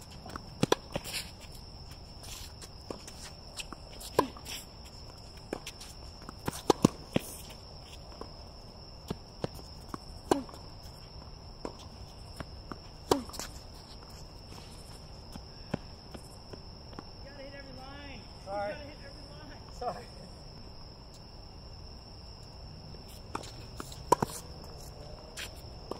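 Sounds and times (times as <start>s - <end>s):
footsteps on hard court: 0.0s - 17.6s, 23.0s - 25.9s
rackets hitting tennis ball: 0.1s - 16.2s, 23.2s - 25.9s.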